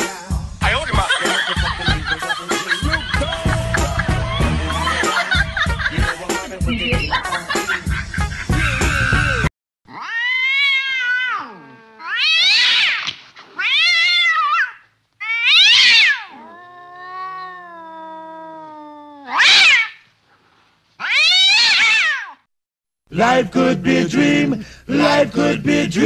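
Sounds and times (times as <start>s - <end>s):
cat meowing: 9.9s - 20.0s, 21.0s - 22.4s.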